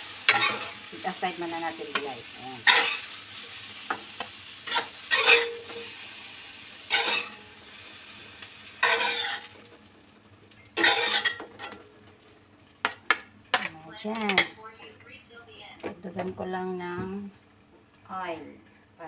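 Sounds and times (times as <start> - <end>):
metal tongs scraping a wok: 0.0 - 1.3, 2.0 - 3.9, 4.6 - 6.2, 6.8 - 8.0, 8.8 - 9.6, 10.8 - 11.8
frying oil sizzling: 0.0 - 13.3.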